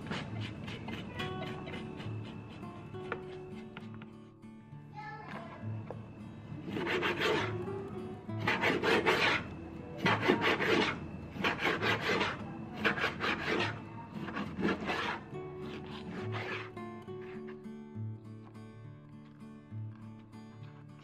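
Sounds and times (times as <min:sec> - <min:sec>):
knife scoring on cutting board: 0:00.0 - 0:04.2, 0:10.0 - 0:17.6
soft background music: 0:00.0 - 0:21.0.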